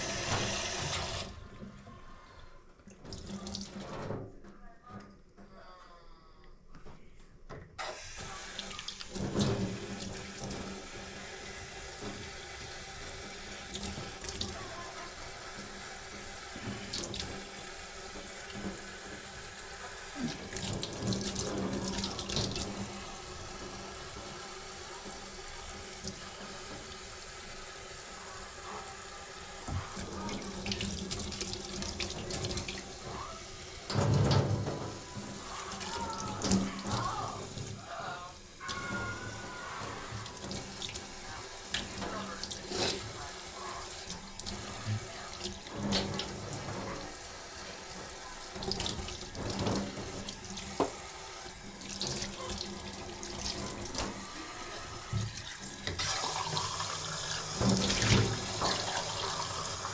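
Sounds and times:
tap running into a sink: 0.0s - 1.4s, 7.8s - 14.6s, 15.5s - 27.6s, 29.6s - 37.8s, 38.6s - 43.3s, 44.0s - 47.3s, 47.9s - 59.9s
dishes clinking: 38.6s - 40.7s.

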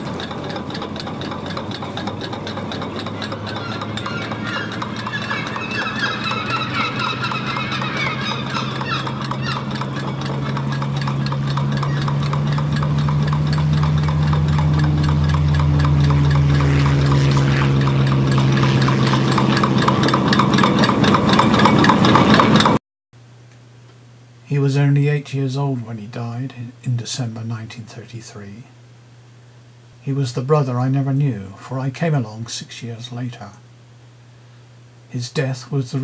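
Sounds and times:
rapid mechanical clatter: 0.0s - 22.8s
steady low hum: 0.0s - 36.0s.

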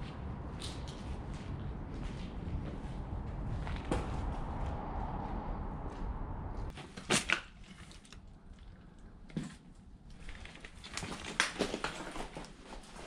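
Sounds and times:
low rumble: 0.0s - 6.7s
debris cracking underfoot: 10.1s - 13.0s.

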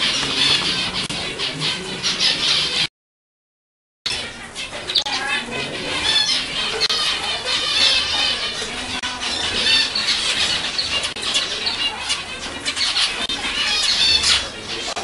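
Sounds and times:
finches calling: 4.1s - 15.0s.

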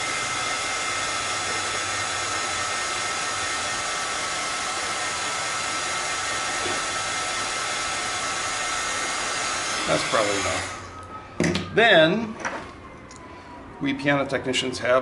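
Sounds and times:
heat gun blowing with high whine: 0.0s - 11.1s.

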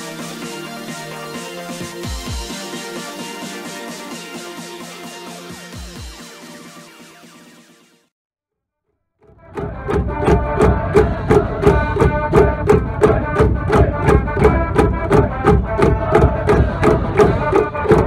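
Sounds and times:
brass band playing: 9.5s - 18.0s
steady drum beat: 9.6s - 18.0s.

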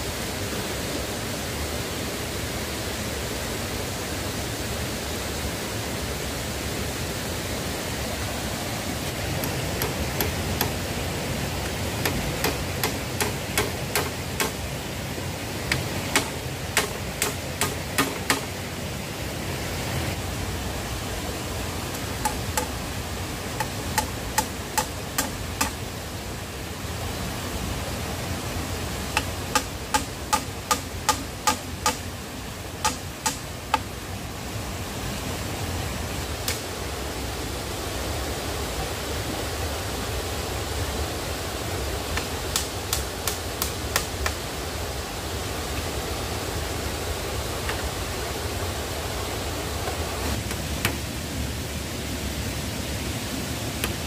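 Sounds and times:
steady rushing noise: 0.0s - 54.0s
hammer knocking on bamboo: 9.3s - 10.9s, 11.6s - 14.6s, 15.6s - 18.6s, 21.9s - 22.8s, 23.6s - 25.8s, 29.1s - 32.1s, 32.8s - 33.8s, 42.2s - 44.4s.

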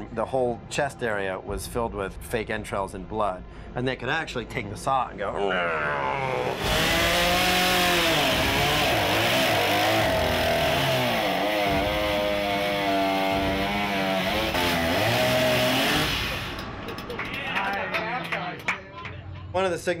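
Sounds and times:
chainsaw engine cutting: 6.4s - 16.8s.

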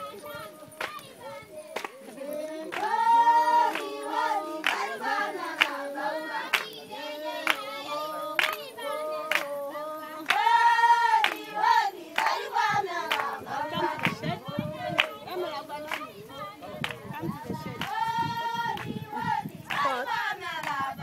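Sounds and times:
women singing together: 0.0s - 21.0s
sharp handclaps: 0.8s - 3.0s, 3.7s - 6.8s, 7.4s - 7.7s, 8.4s - 9.6s, 10.2s - 10.6s, 11.2s - 11.5s, 12.2s - 14.3s, 15.0s - 15.2s, 15.8s - 16.2s, 16.8s - 17.0s, 17.7s - 19.0s, 19.6s - 20.0s, 20.6s - 20.8s.

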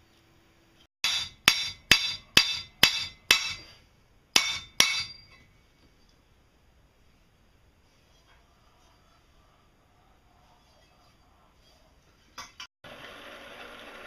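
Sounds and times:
hammer striking steel tube: 1.0s - 3.8s, 4.4s - 5.4s.

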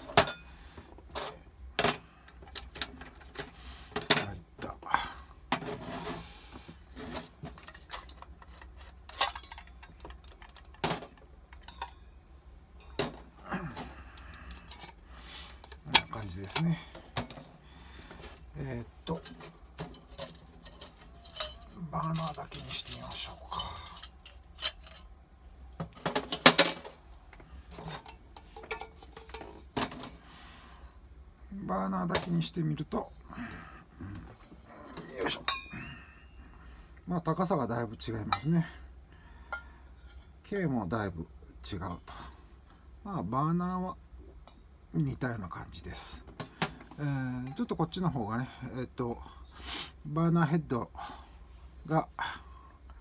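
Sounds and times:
camping stove case clinking: 0.0s - 0.5s, 7.5s - 12.2s, 19.1s - 25.1s, 35.3s - 35.8s.

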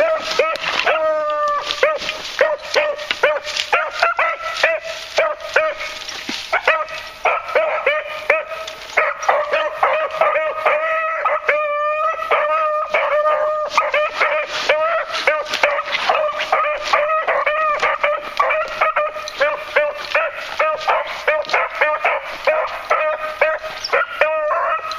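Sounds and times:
dogs baying and yelping: 0.0s - 24.9s.

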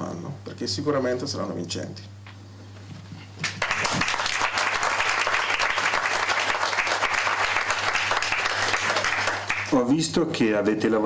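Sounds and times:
audience applause: 3.4s - 9.8s.

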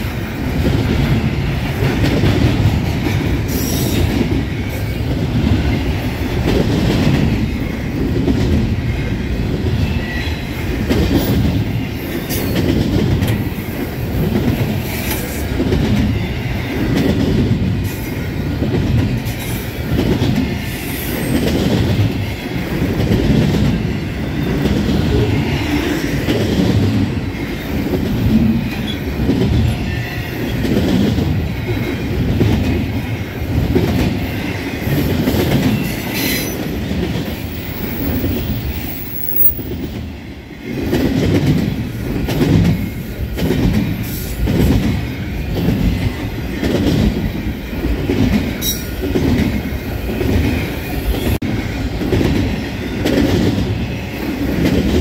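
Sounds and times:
freight train rumble and clatter: 0.0s - 55.0s
train wheel squeals: 3.1s - 6.2s, 8.8s - 13.8s, 14.6s - 17.1s, 17.8s - 26.5s, 27.2s - 40.0s, 42.5s - 46.3s, 47.3s - 54.8s.

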